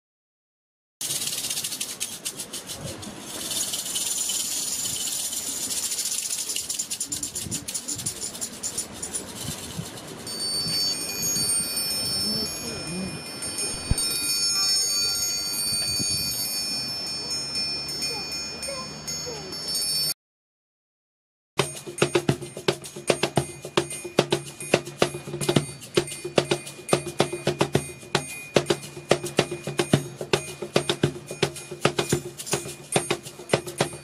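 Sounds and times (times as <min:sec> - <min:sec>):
small bells jingling: 0:01.0 - 0:20.2, 0:21.6 - 0:34.0
high chime tones ringing: 0:10.1 - 0:20.2.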